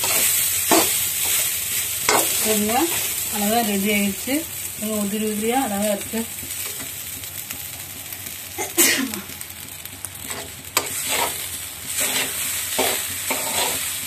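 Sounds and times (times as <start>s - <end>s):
spatula scraping pan: 0.0s - 3.2s, 10.2s - 14.0s
rice sizzling: 0.0s - 14.0s.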